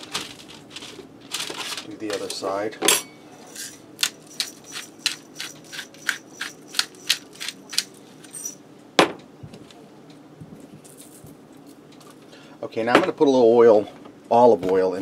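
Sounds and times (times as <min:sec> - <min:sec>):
pepper mill grinding: 0:03.4 - 0:08.6, 0:10.8 - 0:11.8.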